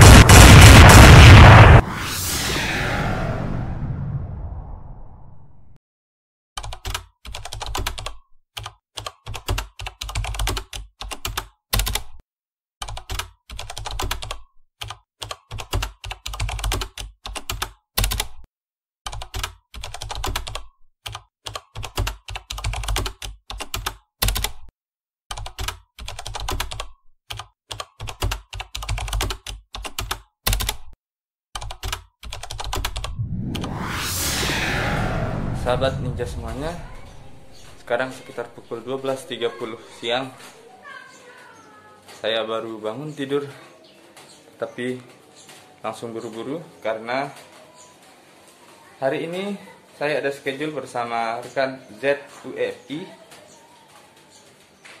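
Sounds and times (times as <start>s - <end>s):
keyboard typing clicks: 19.1s - 24.7s, 25.3s - 31.0s.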